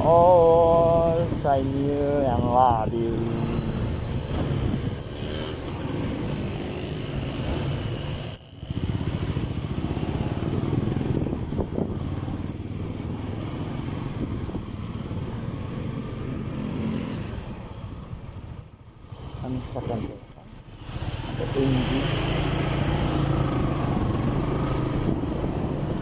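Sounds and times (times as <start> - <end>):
motorcycle engine running: 5.2 - 14.6.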